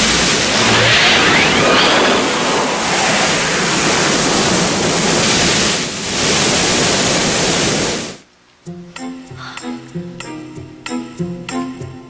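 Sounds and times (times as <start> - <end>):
magic whoosh effect: 0.0 - 5.6.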